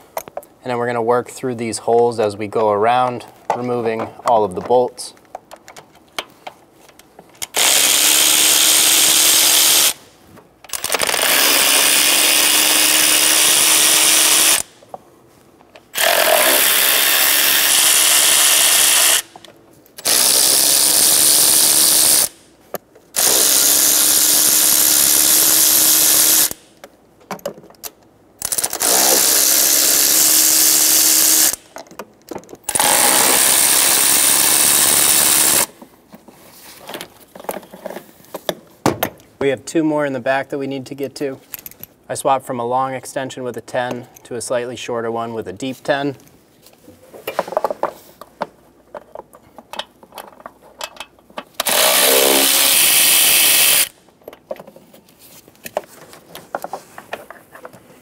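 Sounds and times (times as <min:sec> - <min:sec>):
power tool spinning bolts: 0:07.5 - 0:10.0, 0:10.7 - 0:14.7, 0:15.9 - 0:19.4, 0:20.0 - 0:22.4, 0:23.2 - 0:26.6, 0:28.4 - 0:31.6, 0:32.6 - 0:35.7, 0:51.5 - 0:54.0.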